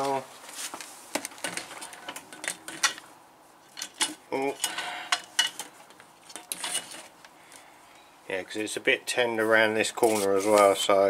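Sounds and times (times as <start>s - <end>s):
sheet steel clatter: 3.8s - 7.1s.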